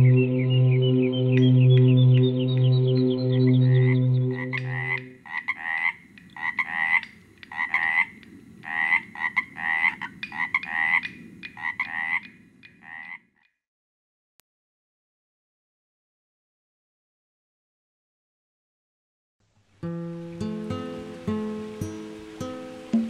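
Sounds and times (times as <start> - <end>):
frog croaking: 3.4 - 13.5.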